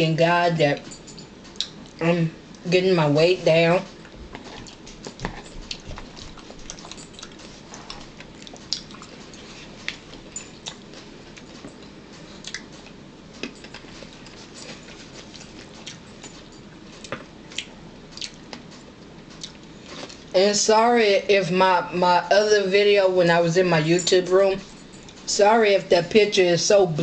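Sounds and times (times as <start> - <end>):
chewing and mouth clicks: 1.4 - 2.0, 4.0 - 20.3.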